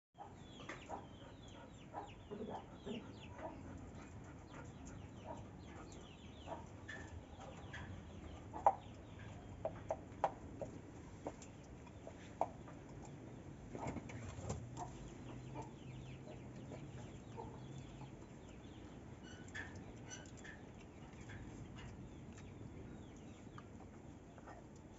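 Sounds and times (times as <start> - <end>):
chickens clucking: 0.2 - 24.9.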